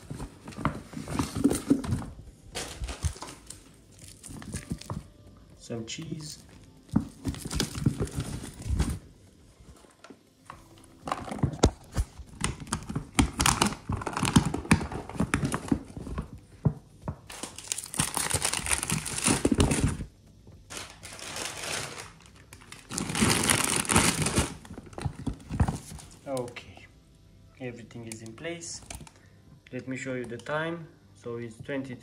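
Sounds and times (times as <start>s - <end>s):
plastic bags crinkling: 2.5s - 5.1s, 6.1s - 9.1s, 11.1s - 16.4s, 17.2s - 20.1s, 20.7s - 26.5s
fabric bag rustling: 20.7s - 24.4s.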